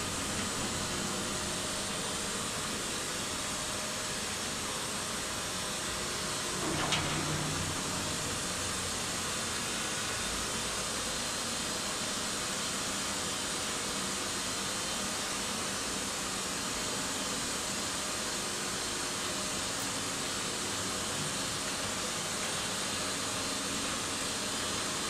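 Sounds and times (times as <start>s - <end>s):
lift hoist running: 0.0s - 11.7s.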